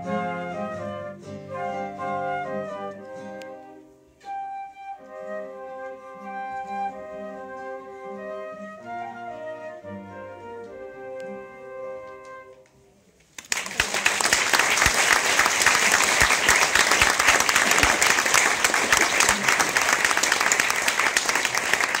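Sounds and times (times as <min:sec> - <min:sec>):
flute chord: 0:00.0 - 0:12.7
audience applause: 0:13.4 - 0:22.0.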